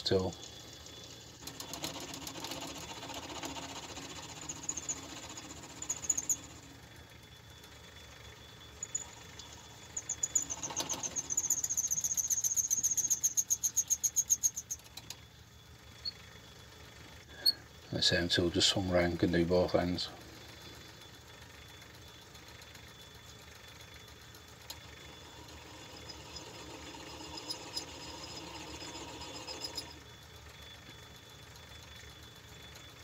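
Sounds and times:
lathe running: 0.4s - 14.8s, 24.3s - 30.6s
high-pitched chirp: 5.8s - 6.6s, 8.7s - 14.8s.

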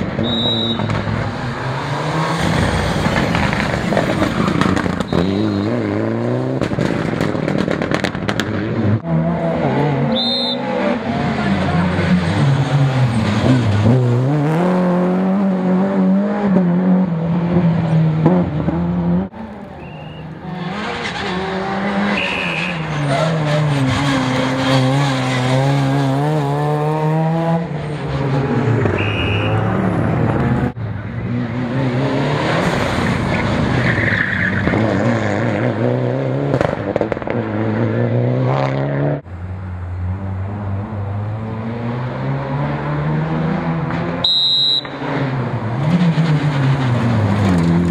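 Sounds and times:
rally car engines revving: 0.0s - 47.9s
tyre squeals: 22.0s - 25.4s.

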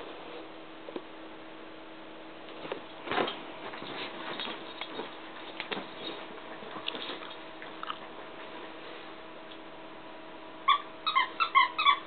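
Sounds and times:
scuffling and rustling on bedding: 2.6s - 7.5s
dog chewing squeaky toy: 10.7s - 12.0s.

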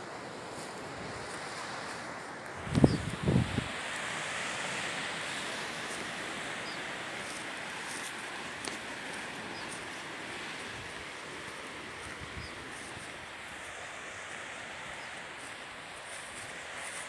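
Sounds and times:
distant surf: 0.0s - 17.0s
wind rushing: 2.6s - 4.5s
wind buffeting microphone: 2.6s - 4.7s, 10.4s - 13.5s.

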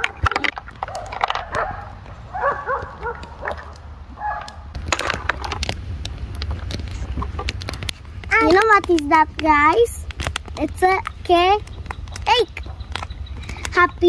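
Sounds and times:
sharp clicks: 0.0s - 14.0s
dog barking: 0.9s - 4.6s.

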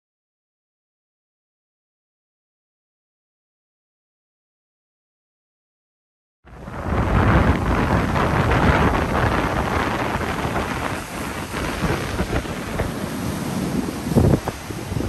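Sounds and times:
waves breaking and rushing: 6.5s - 15.0s.

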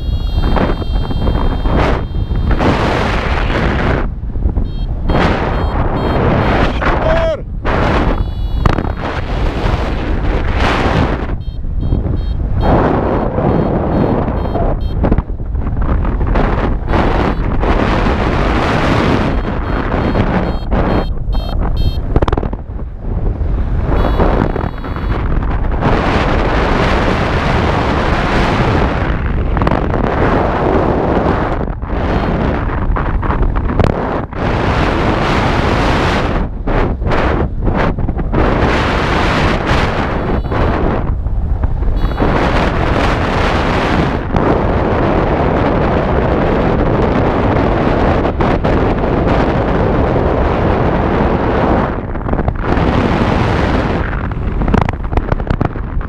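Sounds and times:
high electronic beep: 0.0s - 3.4s, 4.6s - 7.4s, 8.0s - 9.2s, 11.3s - 15.0s, 16.9s - 17.5s, 18.6s - 22.0s, 24.0s - 25.2s, 40.2s - 40.7s, 42.0s - 42.5s
wind buffeting microphone: 0.0s - 56.0s.

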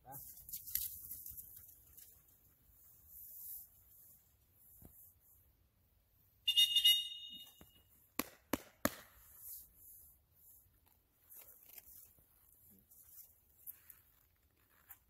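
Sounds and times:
shrill dog whistle blast: 6.5s - 7.6s.

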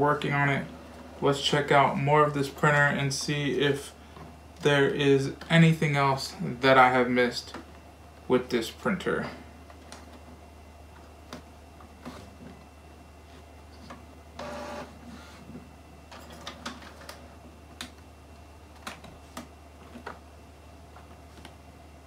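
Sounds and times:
printer mechanical whir: 0.0s - 5.5s, 8.7s - 20.2s.

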